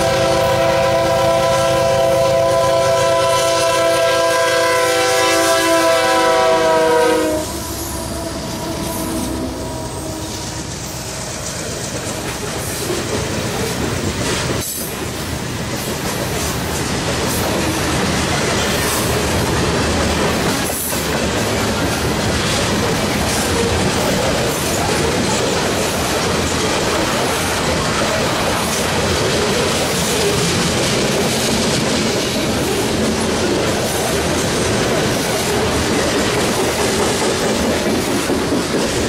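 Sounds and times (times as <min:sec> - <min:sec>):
locomotive air horn: 0:00.0 - 0:10.7
train wheels on rails: 0:00.0 - 0:39.0.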